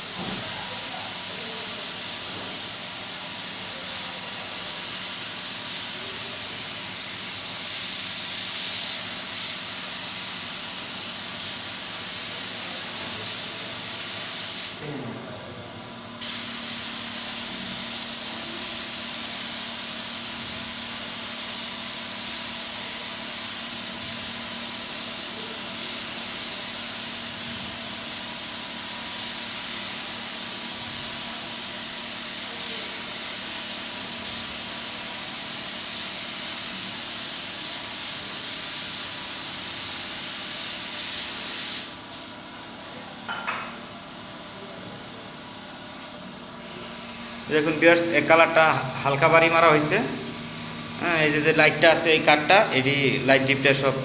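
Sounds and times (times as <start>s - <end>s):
spray gun hissing: 0.0s - 14.8s, 16.2s - 42.0s.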